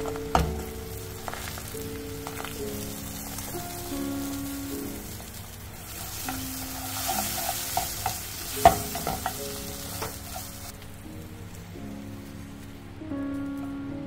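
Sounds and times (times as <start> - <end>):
chopsticks tapping a pan: 0.0 - 10.9
egg sizzling in frying pan: 0.0 - 12.8.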